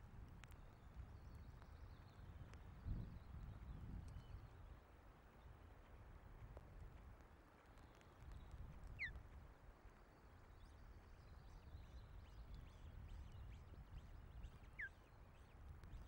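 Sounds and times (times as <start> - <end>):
wind buffeting microphone: 2.3 - 4.6.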